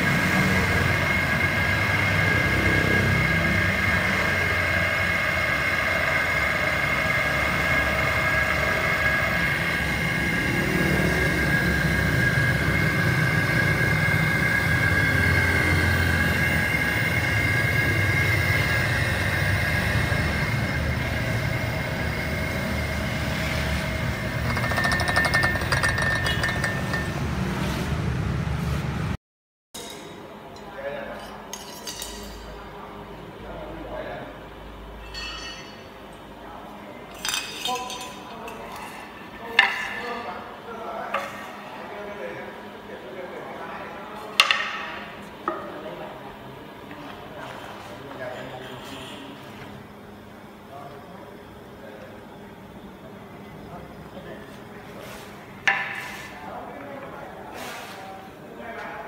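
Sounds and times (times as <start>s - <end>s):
hydraulic pump motor whining: 0.0s - 27.2s
rattling: 24.4s - 27.4s.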